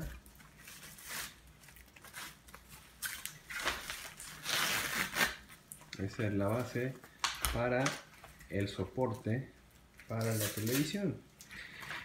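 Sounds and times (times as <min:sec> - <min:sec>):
plastic packaging crinkling: 0:00.0 - 0:09.1.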